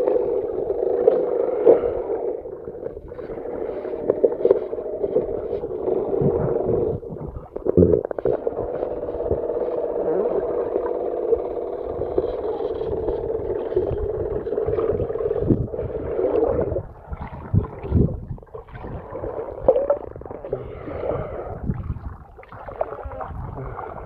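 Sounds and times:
muffled underwater gurgles: 0.0s - 24.0s
electric motor whine underwater: 8.4s - 16.9s.

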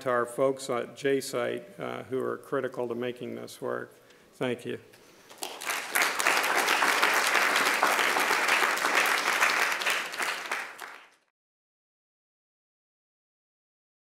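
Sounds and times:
audience applauding: 5.3s - 11.3s.

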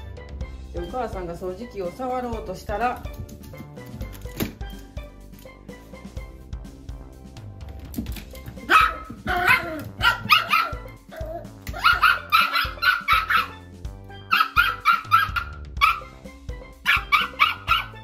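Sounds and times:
background music: 0.0s - 18.0s
dog barking: 8.6s - 13.6s, 14.3s - 16.2s, 16.8s - 18.0s.

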